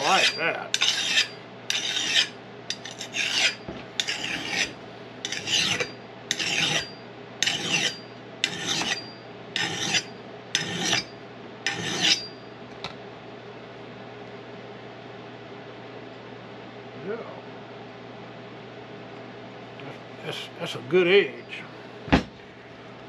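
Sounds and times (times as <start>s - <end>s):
sharpener rasping on steel edge: 0.0s - 11.1s, 11.7s - 12.3s.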